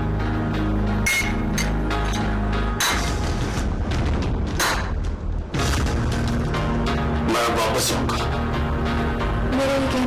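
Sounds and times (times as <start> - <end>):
sharp percussive hits: 1.0 - 6.8.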